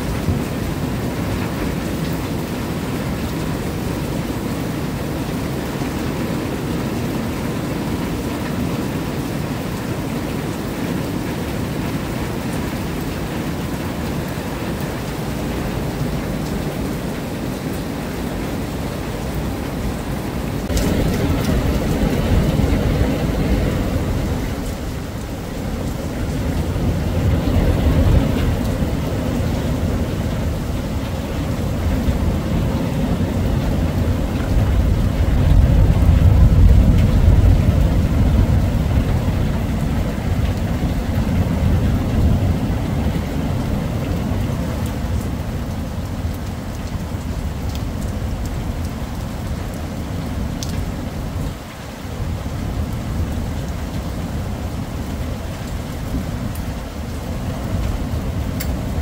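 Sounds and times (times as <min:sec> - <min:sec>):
heavy rain: 0:00.0 - 0:59.0
thunder crack and rumble: 0:20.6 - 0:49.2.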